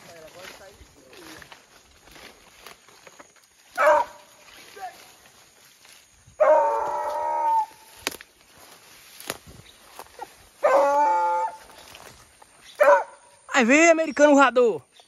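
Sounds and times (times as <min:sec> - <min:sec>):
hound baying: 0:03.8 - 0:04.3, 0:06.4 - 0:07.8, 0:10.2 - 0:11.8, 0:12.7 - 0:13.4.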